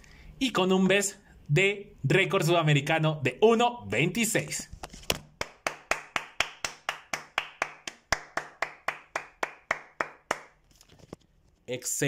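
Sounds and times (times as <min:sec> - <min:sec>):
person clapping hands: 0:05.1 - 0:10.6.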